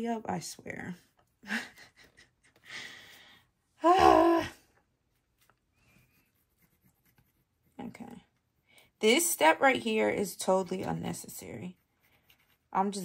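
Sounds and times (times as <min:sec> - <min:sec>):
woman sighing: 0:02.6 - 0:04.8.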